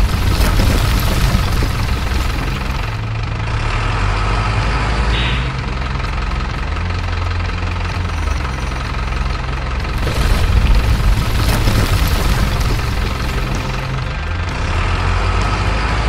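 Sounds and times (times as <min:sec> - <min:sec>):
truck bed tipping soil: 0:00.0 - 0:03.1, 0:09.5 - 0:14.2
model truck engine idling: 0:00.0 - 0:16.0.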